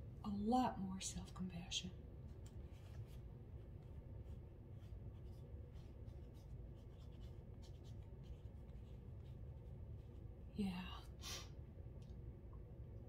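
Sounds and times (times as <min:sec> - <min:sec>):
low steady hum: 0:00.0 - 0:13.0
crayon scratching on paper: 0:03.8 - 0:10.3.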